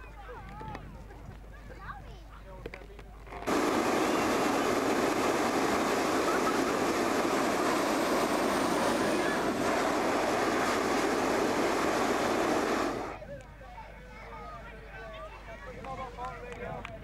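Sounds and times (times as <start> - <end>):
propane burner blast: 3.5 - 13.2.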